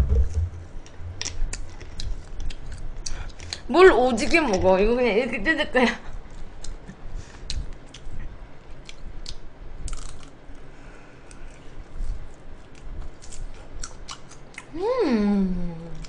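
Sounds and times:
chewing and crunching food: 1.2s - 3.7s, 6.2s - 14.8s.

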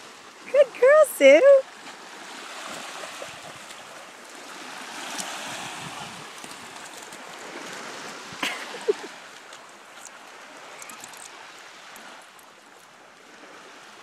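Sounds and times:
small waves washing on sand: 0.0s - 14.0s
dog splashing in shallow water: 1.6s - 12.8s.

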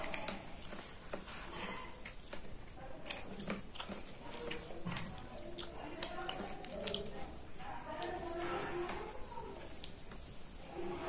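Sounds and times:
child chewing: 0.0s - 8.5s.

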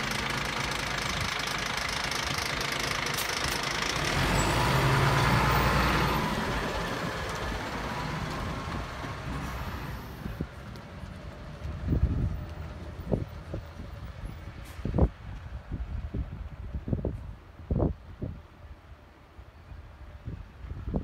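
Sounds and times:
truck engine driving off: 0.0s - 15.1s.

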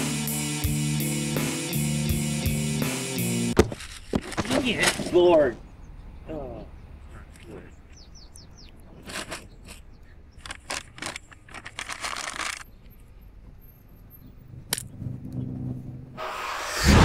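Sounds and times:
paper crinkling: 3.7s - 5.2s, 8.9s - 12.6s
loud rushing noise: 16.2s - 17.0s.

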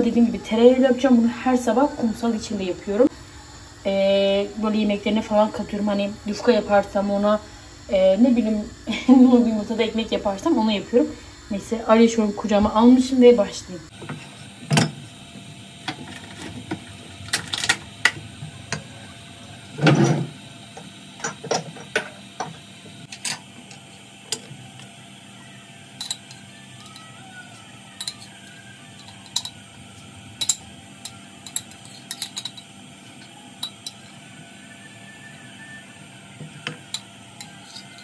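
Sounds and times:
faint steady hum: 0.0s - 38.0s
utensils and pots clinking: 21.2s - 24.9s, 25.9s - 34.2s, 36.4s - 38.0s.

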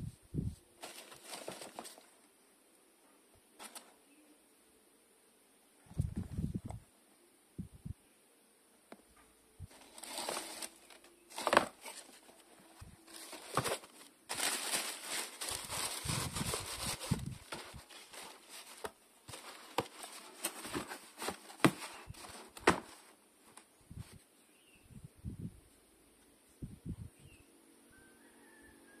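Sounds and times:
wrapping paper rustling and crinkling: 0.8s - 2.2s, 9.7s - 24.1s.

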